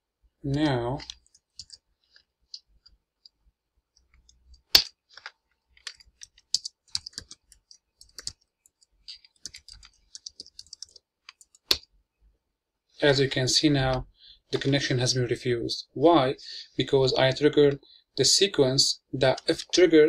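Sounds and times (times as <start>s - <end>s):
typing on computer keyboard: 1.0s - 1.8s, 5.8s - 11.8s.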